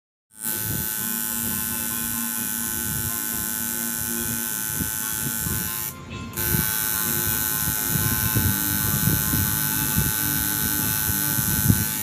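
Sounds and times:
tattoo machine buzzing: 0:00.3 - 0:12.0.

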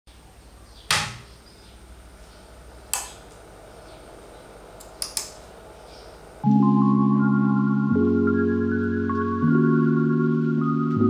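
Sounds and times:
rocker switch clicking: 0:02.9 - 0:03.4.

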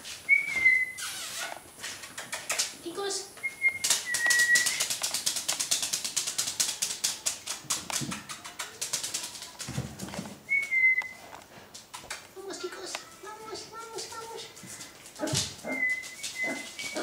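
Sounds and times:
puppies moving with light clicks: 0:00.3 - 0:17.0
puppy whining: 0:15.2 - 0:17.0.

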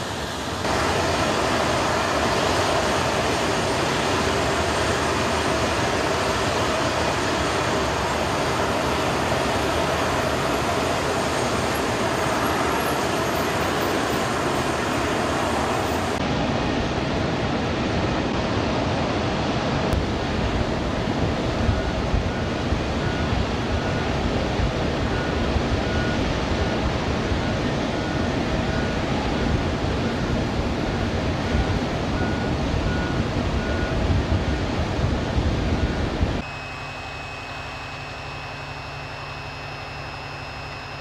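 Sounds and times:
jet engines roaring: 0:00.0 - 0:41.0
faint high beep: 0:25.1 - 0:26.2, 0:32.2 - 0:34.0, 0:35.8 - 0:41.0.

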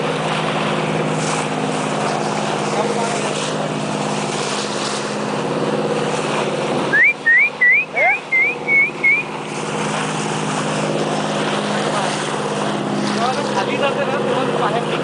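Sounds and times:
boat engine running: 0:00.0 - 0:15.0
short rising whistles: 0:06.9 - 0:09.3.

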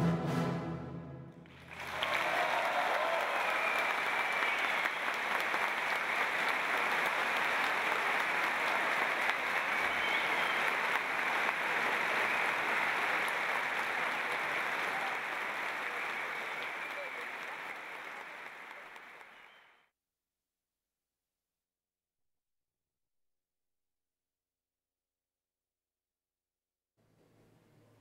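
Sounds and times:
audience applauding: 0:01.4 - 0:19.8.

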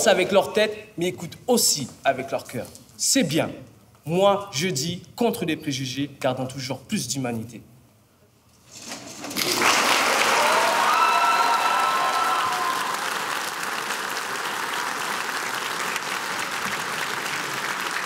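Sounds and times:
audience applauding: 0:09.4 - 0:18.0
voices cheering: 0:10.2 - 0:13.5.

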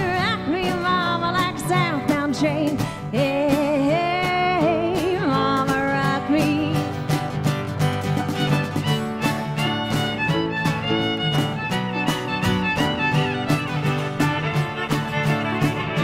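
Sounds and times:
woman singing: 0:00.0 - 0:07.0
light percussion: 0:00.0 - 0:16.0
strummed acoustic guitar: 0:00.0 - 0:16.0
piano: 0:06.8 - 0:16.0.

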